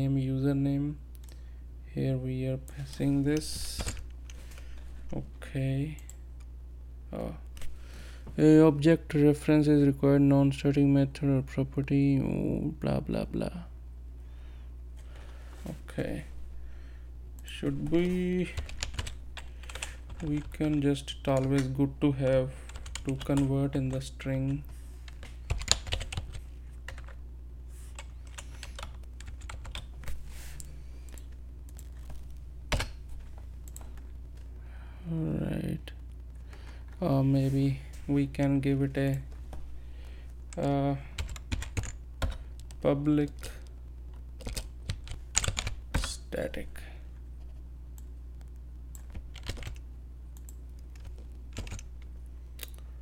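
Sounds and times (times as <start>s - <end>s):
steady low hum: 0.0s - 53.0s
keyboard keys clicking: 25.1s - 27.2s, 28.0s - 29.9s, 40.5s - 43.4s, 44.4s - 46.1s, 48.9s - 49.8s, 50.4s - 51.9s
keyboard keystrokes: 49.0s - 49.8s.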